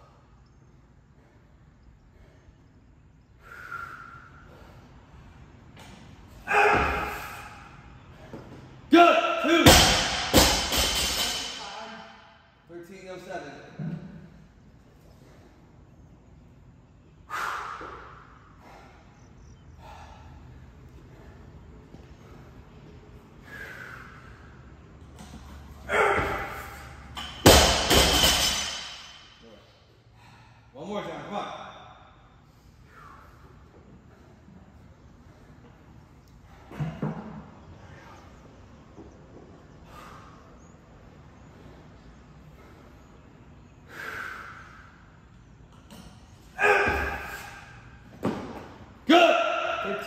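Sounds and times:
man breathing hard: 1.1s - 5.4s, 17.2s - 24.8s, 30.0s - 30.8s, 32.4s - 34.3s, 39.8s - 40.6s, 42.4s - 45.2s.

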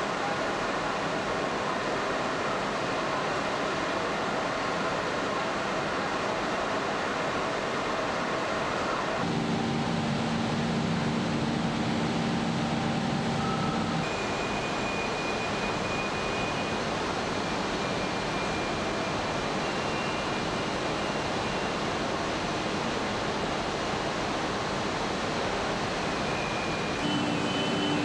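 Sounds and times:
industrial machinery hum: 0.0s - 28.0s
thin high whine: 26.3s - 28.0s.

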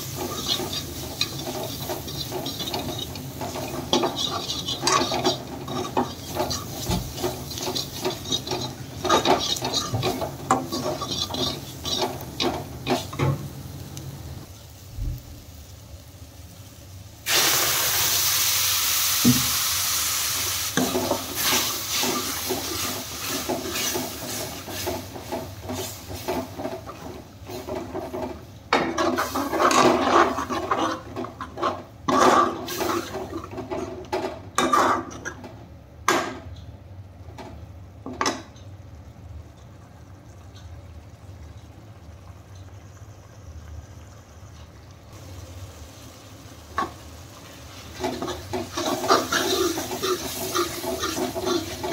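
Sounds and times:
ladle scraping metal pan: 0.0s - 13.1s
water hissing in hot pan: 0.0s - 33.5s, 45.1s - 51.9s.

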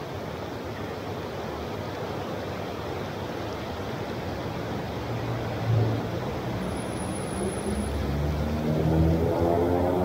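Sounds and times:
heavy rain pouring: 1.2s - 10.0s
low vehicle engine hum: 5.0s - 10.0s.

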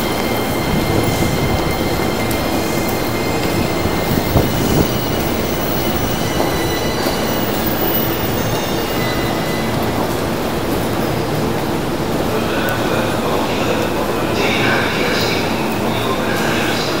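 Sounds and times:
high wheel squeal: 0.0s - 10.3s
train wheels rumbling on rail: 0.0s - 17.0s.

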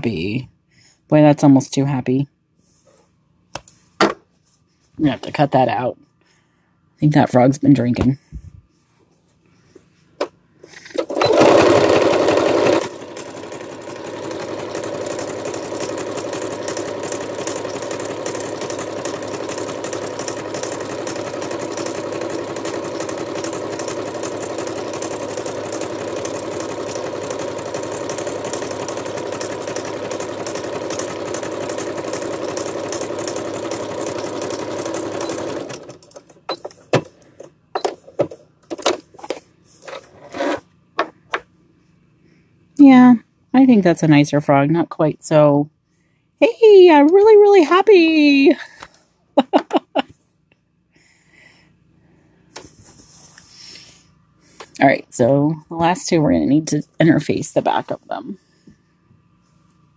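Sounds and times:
sewing machine stitching: 10.6s - 37.1s.

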